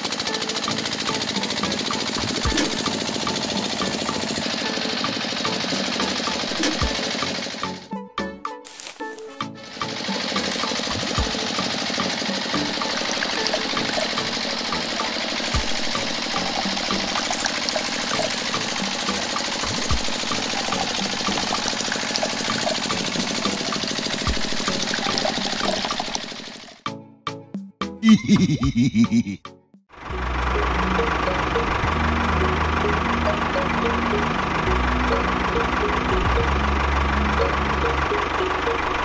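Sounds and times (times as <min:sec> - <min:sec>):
liquid pouring into metal buckets: 0:12.8 - 0:26.8.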